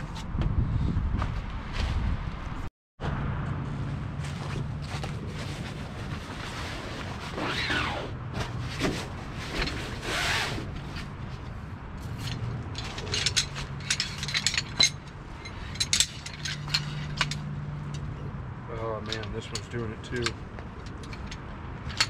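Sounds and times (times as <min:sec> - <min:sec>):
metal frame clicks and clinks: 0:12.1 - 0:18.2, 0:18.9 - 0:22.0.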